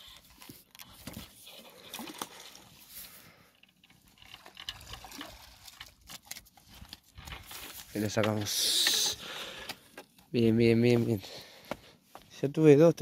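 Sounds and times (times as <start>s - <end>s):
small clicks and scrapes: 0.0s - 10.3s.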